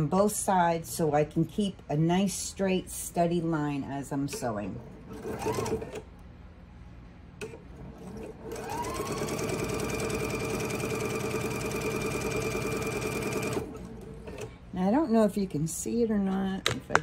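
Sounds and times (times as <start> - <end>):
sewing machine stitching: 5.1 - 6.0, 7.4 - 14.5.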